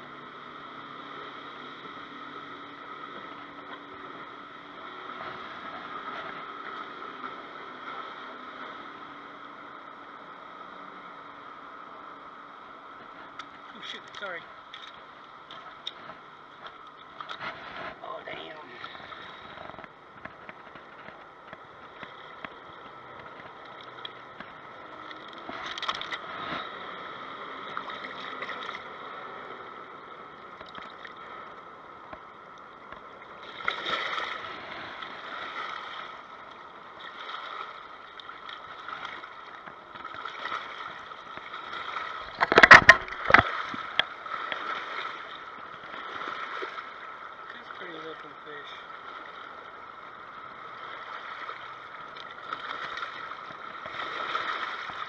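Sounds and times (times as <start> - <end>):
river water over rocks: 0.0 - 55.0
fish splashing in water: 50.9 - 55.0.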